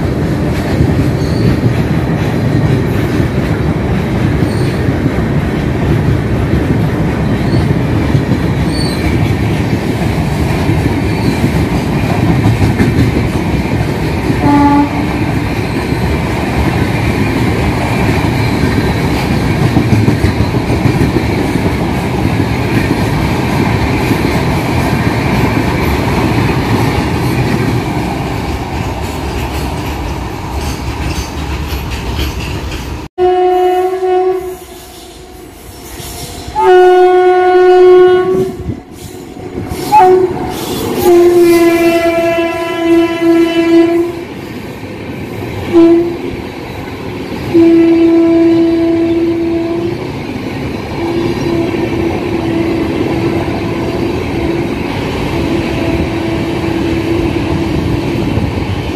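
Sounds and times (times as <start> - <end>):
train wheels rumbling on rails: 0.0 - 58.9
locomotive horn blast: 14.4 - 15.2, 33.2 - 38.9, 39.9 - 44.2, 45.7 - 46.3, 47.5 - 50.0, 51.0 - 54.7.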